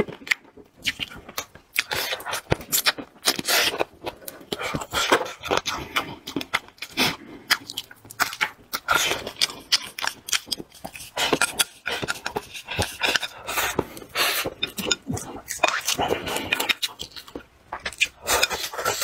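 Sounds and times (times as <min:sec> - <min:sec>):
person chewing crunchy food: 0:00.0 - 0:19.0
wet mouth clicks: 0:00.2 - 0:19.0.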